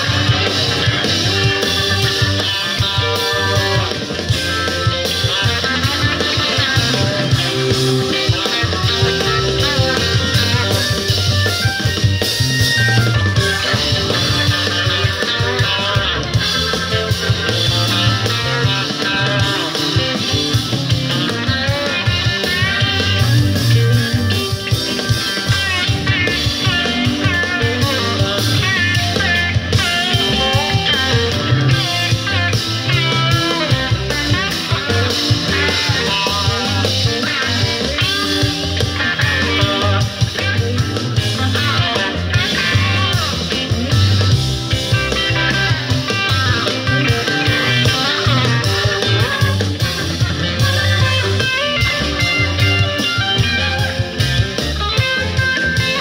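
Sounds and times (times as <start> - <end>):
bass guitar: 0.0 - 56.0
drum kit: 0.0 - 56.0
electric guitar lead lines: 0.0 - 56.0.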